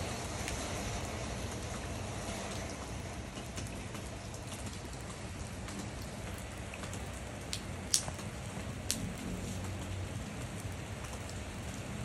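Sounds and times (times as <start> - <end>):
rain on concrete: 0.0 - 12.0.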